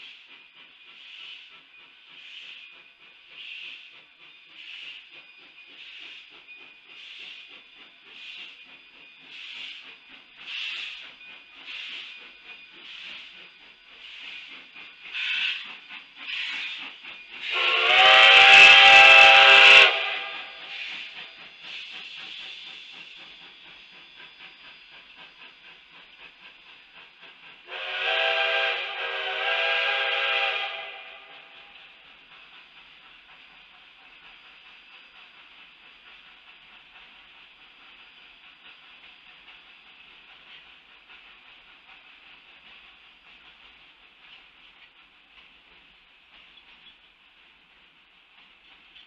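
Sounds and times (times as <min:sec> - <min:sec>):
steam locomotive exhaust chuffs: 0:00.0 - 0:49.0
steam whistle blast: 0:15.1 - 0:15.6, 0:17.4 - 0:20.8, 0:27.7 - 0:31.7.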